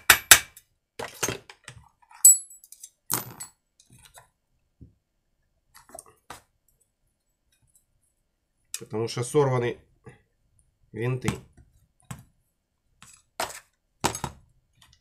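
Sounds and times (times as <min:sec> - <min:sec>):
hand tools clinking on workbench: 0:02.2 - 0:03.6.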